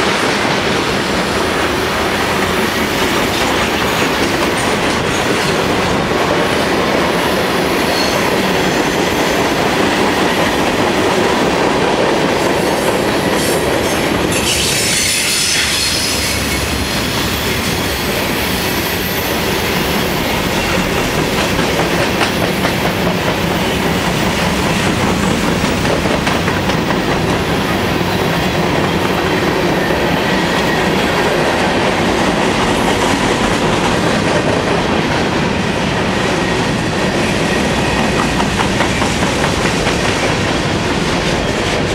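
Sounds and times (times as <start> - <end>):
freight train rolling past: 0.0 - 41.9
high wheel squeal: 13.9 - 21.0.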